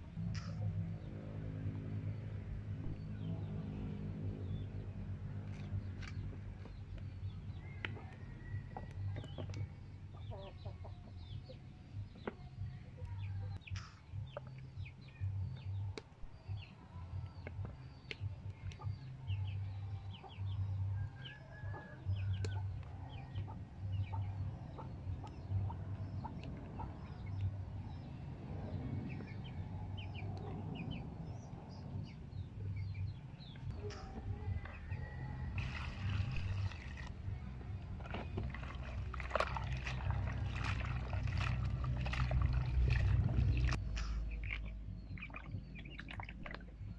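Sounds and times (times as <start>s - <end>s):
low rumble: 0.0s - 46.9s
small birds chirping: 2.1s - 46.9s
chickens clucking: 7.5s - 13.6s, 21.2s - 27.4s.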